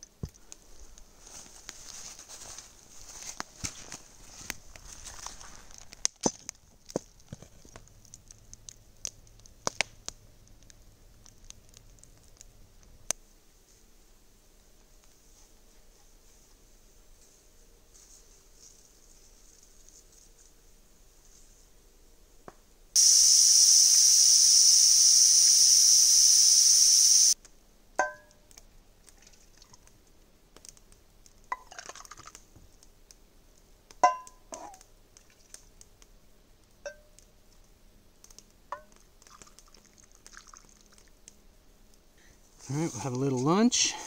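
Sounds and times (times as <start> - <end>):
pressure cooker steam hiss: 23.0 - 27.4.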